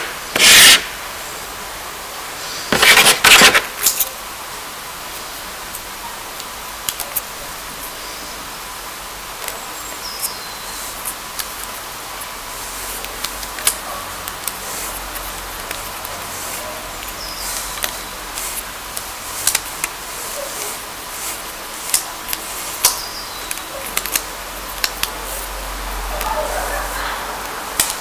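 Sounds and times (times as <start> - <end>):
background hiss: 0.0 - 28.0
wooden sticks clicking: 10.2 - 28.0.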